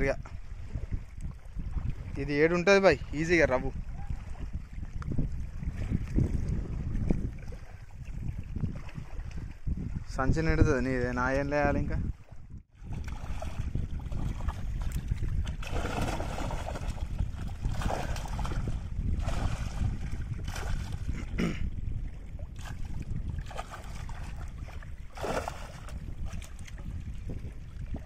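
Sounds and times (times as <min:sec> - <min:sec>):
wind on microphone: 0:00.0 - 0:28.0
river water splashing: 0:12.8 - 0:21.1, 0:22.1 - 0:26.8.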